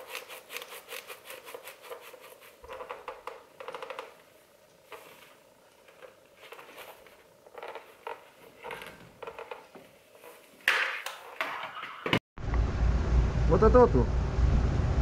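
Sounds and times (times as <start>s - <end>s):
helmet handling rustles and taps: 0.9s - 12.1s.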